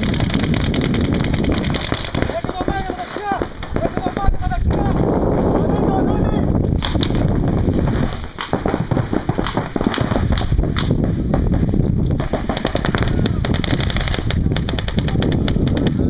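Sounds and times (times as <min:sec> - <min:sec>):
paintball markers firing: 0:00.0 - 0:04.4, 0:06.8 - 0:11.2, 0:12.2 - 0:16.0.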